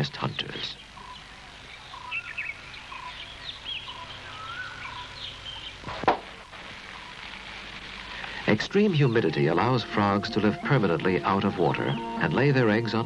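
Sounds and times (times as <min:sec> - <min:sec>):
steady background hiss: 0:00.0 - 0:13.0
animal chirps: 0:00.8 - 0:05.8
sharp knock: 0:05.9 - 0:06.3.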